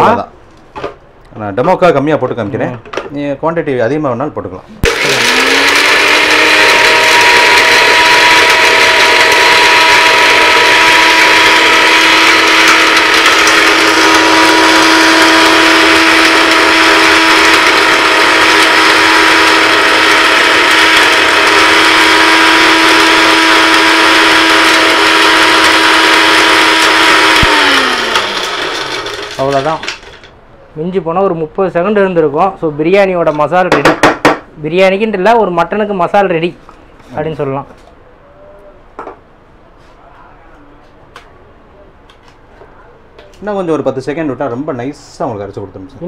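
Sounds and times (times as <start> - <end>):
electric blender motor whining: 4.8 - 30.2.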